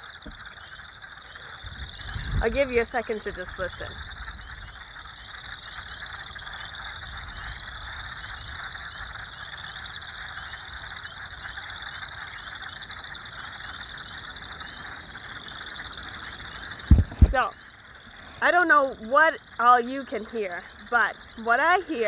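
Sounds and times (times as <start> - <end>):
frog trill: 0.0 - 22.0
high-pitched frog peeping: 0.0 - 22.0
low quacking frog calls: 0.0 - 22.0.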